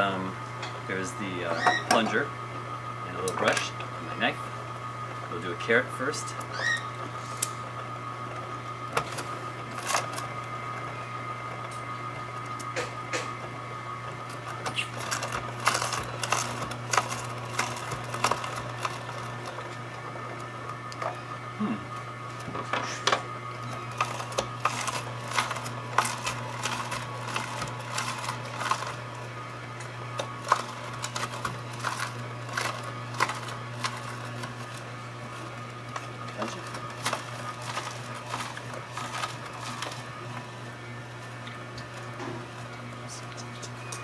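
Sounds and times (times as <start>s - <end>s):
juicer motor humming: 0.0s - 44.0s
carrots cracking and snapping: 23.8s - 34.8s.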